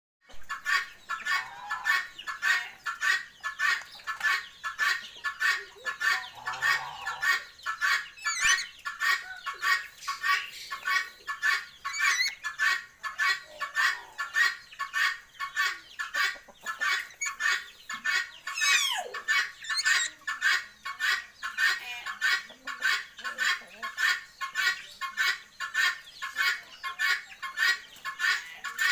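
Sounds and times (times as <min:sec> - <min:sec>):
short clucking bird calls: 0:00.3 - 0:28.9
high whistled bird calls: 0:08.2 - 0:08.8.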